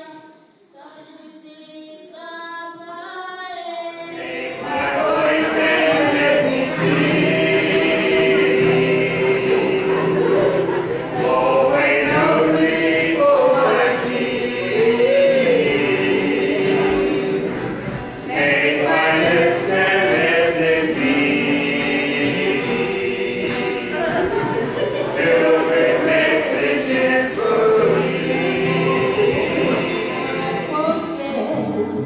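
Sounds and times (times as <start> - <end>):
choir singing: 4.0 - 32.0.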